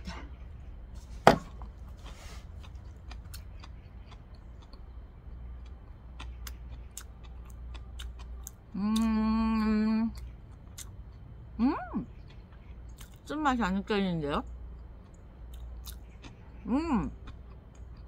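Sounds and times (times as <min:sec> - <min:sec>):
person chewing food: 0:00.2 - 0:11.4, 0:12.1 - 0:13.2, 0:14.6 - 0:18.0
person humming mmm: 0:08.7 - 0:10.1.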